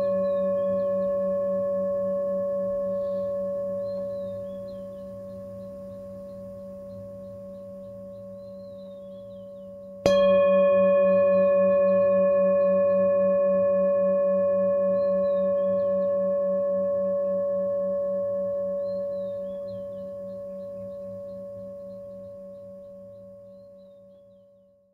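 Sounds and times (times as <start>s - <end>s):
singing bowl ringing: 0.0s - 24.1s
low wavering hum: 0.0s - 24.4s.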